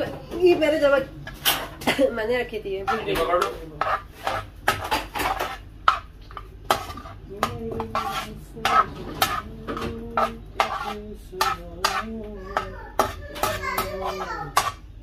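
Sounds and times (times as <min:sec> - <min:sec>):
metal spatula scraping a pan: 0:02.8 - 0:15.0.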